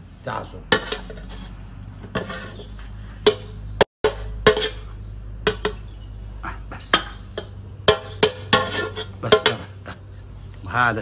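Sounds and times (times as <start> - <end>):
metal ladle clanking on pot: 2.1 - 5.9, 7.8 - 9.8.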